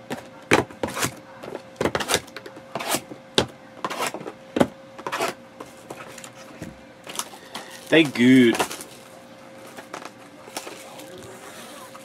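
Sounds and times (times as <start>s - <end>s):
faint steady hum: 0.0s - 12.0s
wrapper and cardboard tearing: 7.1s - 9.1s, 9.7s - 12.0s.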